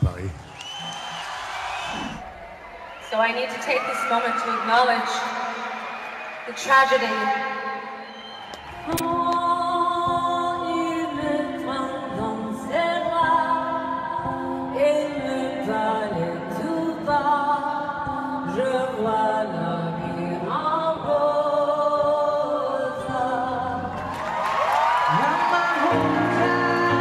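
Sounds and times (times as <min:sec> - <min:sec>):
woman singing long notes: 0:25.1 - 0:27.0.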